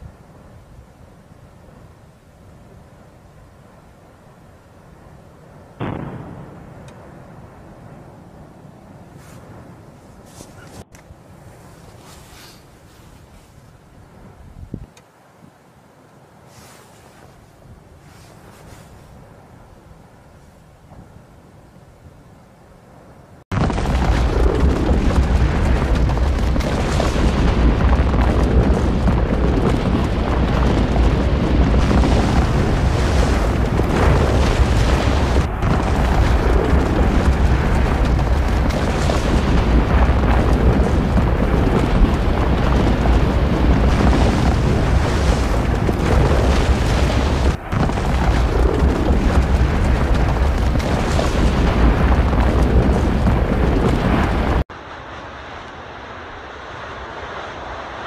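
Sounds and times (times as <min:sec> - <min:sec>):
volcanic eruption roar: 0:23.5 - 0:58.0.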